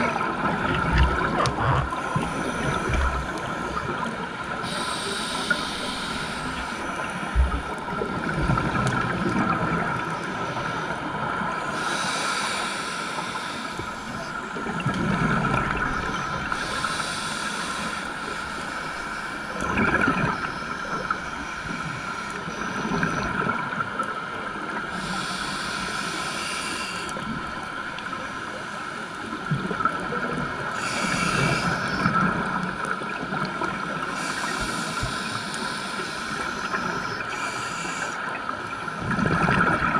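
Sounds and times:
underwater regulator breathing: 0:00.9 - 0:04.0, 0:04.6 - 0:07.8, 0:11.7 - 0:14.3, 0:16.5 - 0:19.5, 0:25.0 - 0:27.2, 0:30.7 - 0:32.1, 0:34.1 - 0:38.3.

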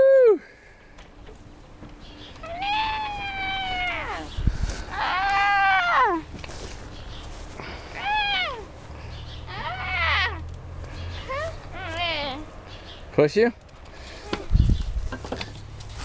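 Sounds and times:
tire swing hardware squeaking: 0:01.2 - 0:16.0.

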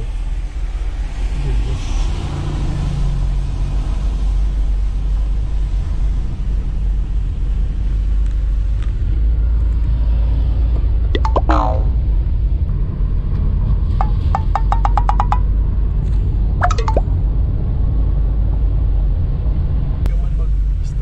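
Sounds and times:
brief pitched sound: 0:11.2 - 0:12.0, 0:16.6 - 0:17.0
clicks: 0:11.2 - 0:12.0, 0:14.1 - 0:15.4, 0:16.6 - 0:17.0.

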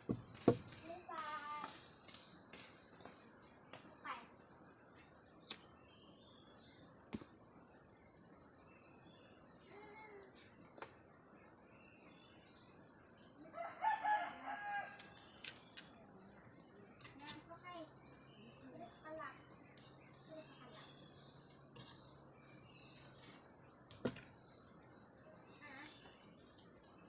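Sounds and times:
insects chirring: 0:00.0 - 0:27.0
rooster crowing: 0:13.5 - 0:15.2.

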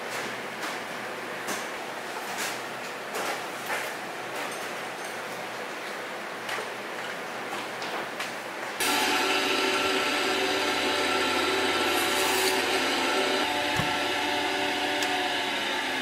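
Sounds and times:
band saw cutting bone: 0:08.8 - 0:16.0.

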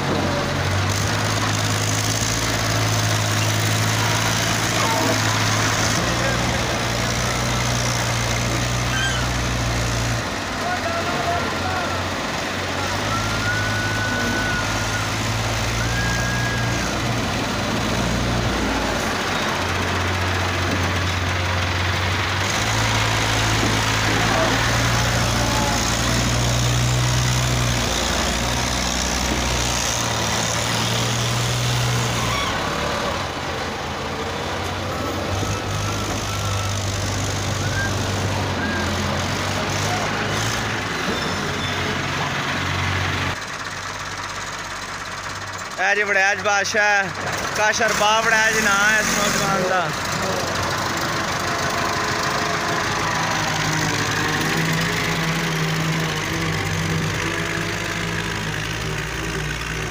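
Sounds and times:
loader dumping soil: 0:00.0 - 0:43.3
diesel tractor engines under load: 0:00.0 - 0:59.9.

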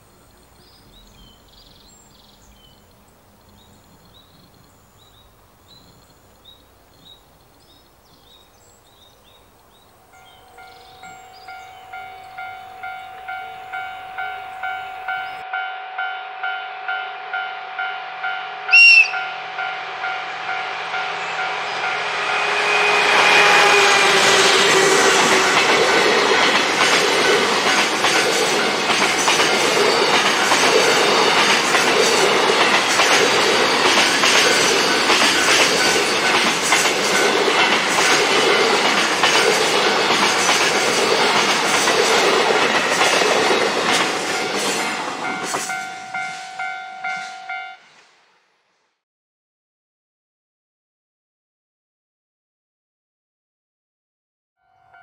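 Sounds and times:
level crossing bells ringing: 0:10.2 - 0:21.0, 0:44.3 - 0:47.8
locomotive horn toot: 0:10.5 - 0:25.7, 0:45.8 - 0:47.8
train wheels clattering: 0:21.5 - 0:47.5.

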